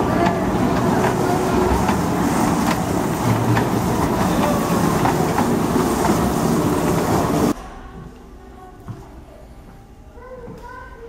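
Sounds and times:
kiddie train rumbling: 0.0 - 7.6
train wheels clicking: 0.0 - 7.6.

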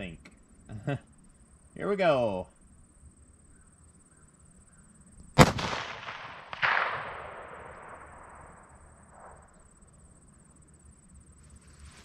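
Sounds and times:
rifle shot: 5.4 - 9.6
sharp echoing report: 5.4 - 9.6.

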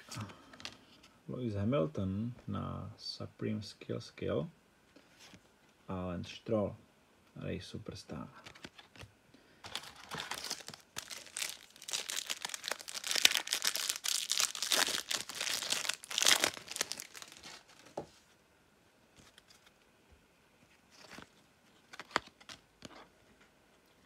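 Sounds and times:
wrapper tearing and crinkling: 9.6 - 17.9.

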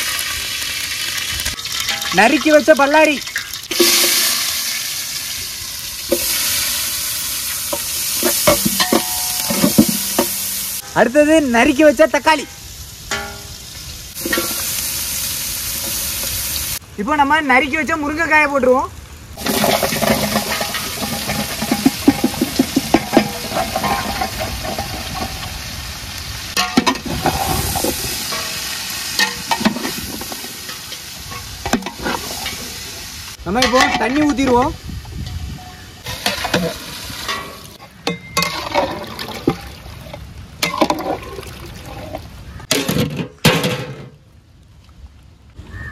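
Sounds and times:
onions sizzling in hot oil: 0.0 - 38.8
metal ladle scraping pot: 3.3 - 4.4, 7.7 - 10.8, 14.2 - 14.7, 19.4 - 25.6, 26.6 - 32.8, 35.2 - 43.4
metal ladle knocking against pot: 8.2 - 10.4.

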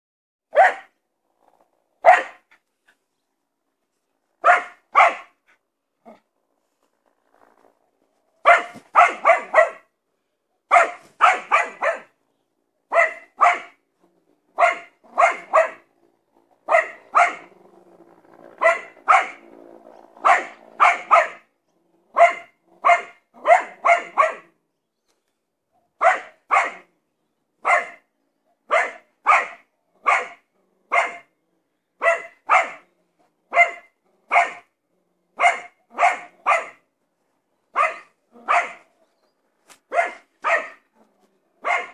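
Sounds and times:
dog barking sharply: 0.5 - 0.9, 2.0 - 2.4, 4.4 - 5.3, 8.5 - 9.8, 10.7 - 12.1, 12.9 - 13.8, 14.6 - 15.8, 26.0 - 26.9, 28.7 - 31.2, 32.0 - 32.8, 33.5 - 34.6, 35.4 - 36.8, 37.8 - 38.8, 39.9 - 40.8, 41.6 - 41.9.

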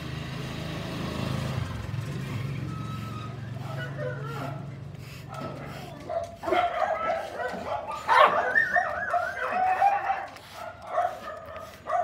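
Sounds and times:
dog barking and yipping: 3.6 - 12.0.

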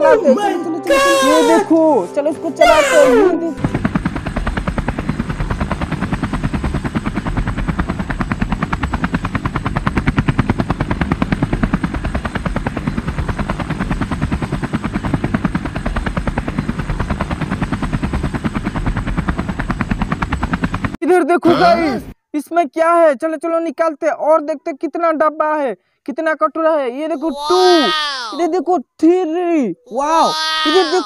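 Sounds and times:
toy helicopter rapid clatter: 3.6 - 21.0.

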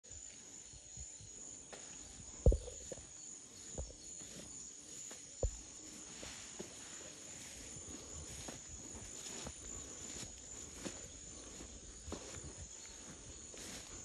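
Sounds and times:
insects droning: 0.0 - 14.0
low thumps: 2.4 - 3.0.

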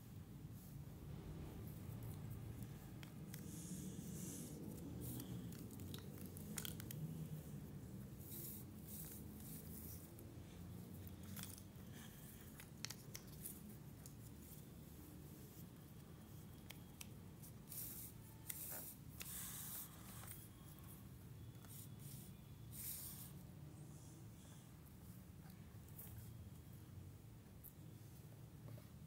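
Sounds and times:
low room hum: 0.0 - 29.0.

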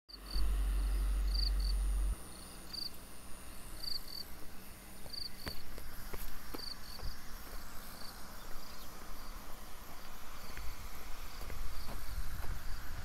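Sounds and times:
high-pitched drone: 0.1 - 4.9
insect chirping: 0.1 - 13.0
low rumble: 0.3 - 2.8.

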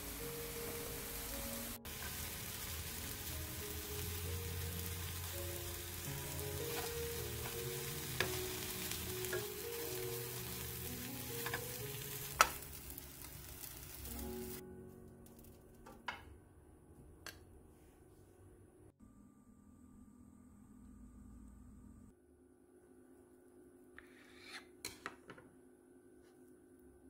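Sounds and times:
food sizzling in oil: 0.0 - 14.6
soft background music: 0.0 - 16.1.

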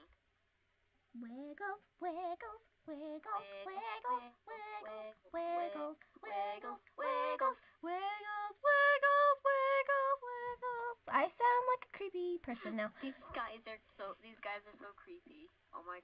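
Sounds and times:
woman singing unaccompanied: 1.2 - 13.8.

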